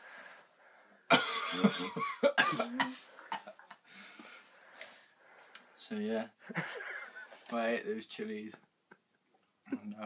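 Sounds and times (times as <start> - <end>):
quiet breaths: 0.0 - 1.1, 2.7 - 7.6
man coughing hard: 1.1 - 3.5.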